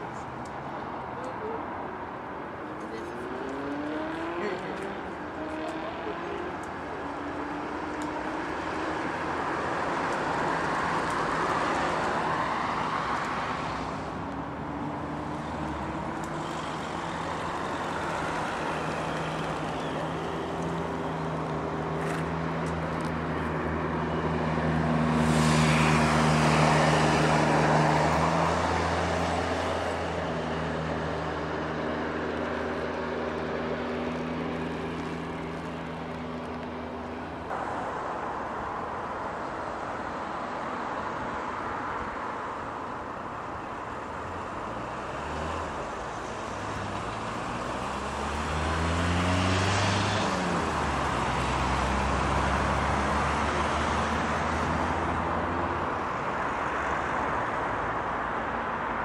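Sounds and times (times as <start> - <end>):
vehicle engine humming: 0.0 - 40.5
cars passing: 0.0 - 59.0.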